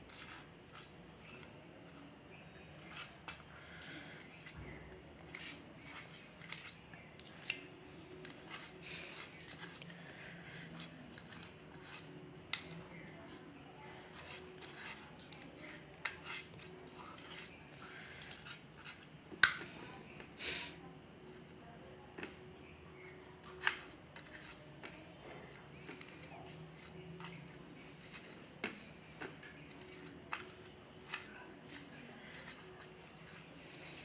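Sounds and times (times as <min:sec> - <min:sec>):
cutlery scraping on ceramic plate: 0:14.1 - 0:17.6, 0:18.2 - 0:19.6, 0:23.4 - 0:25.0.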